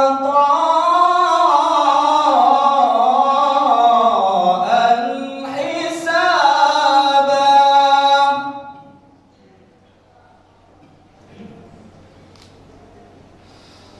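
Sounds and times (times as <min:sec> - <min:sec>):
man reciting melodically: 0:00.0 - 0:09.1.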